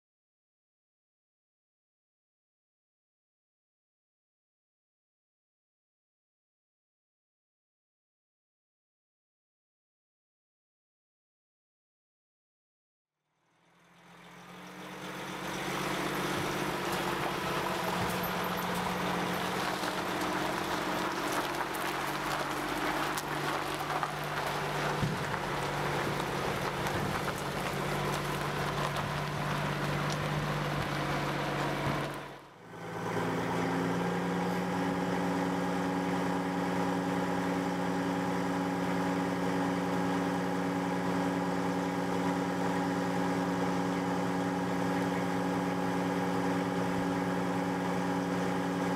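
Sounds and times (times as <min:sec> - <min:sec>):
truck diesel engine idling: 0:13.5 - 0:48.9.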